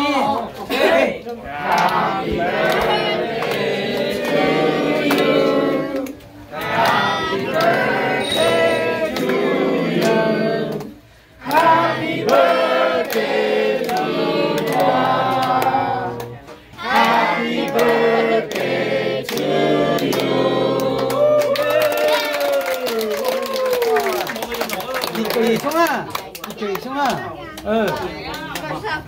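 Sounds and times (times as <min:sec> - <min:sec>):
voices singing: 0:01.5 - 0:21.4.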